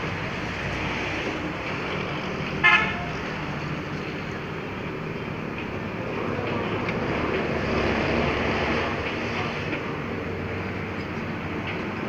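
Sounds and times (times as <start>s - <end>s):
background traffic noise: 0.0s - 12.0s
vehicle horn toot: 2.6s - 3.1s.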